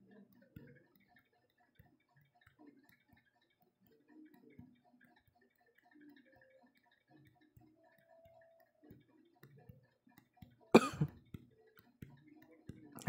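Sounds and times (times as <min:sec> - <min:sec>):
man coughing: 0:10.8 - 0:11.1.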